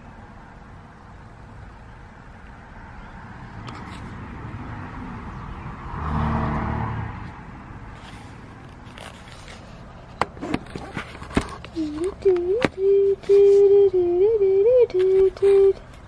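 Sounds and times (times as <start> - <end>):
car passing by: 2.7 - 9.7.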